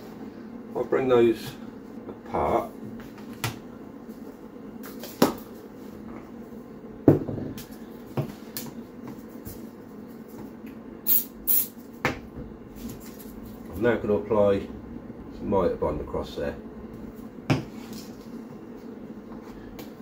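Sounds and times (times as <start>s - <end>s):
objects knocking on plywood: 7.1s - 7.6s.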